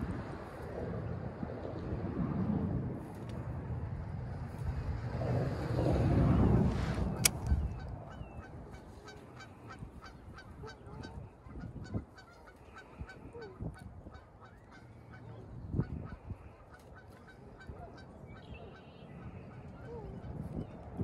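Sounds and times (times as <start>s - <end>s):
geese honking faintly: 6.5s - 21.0s.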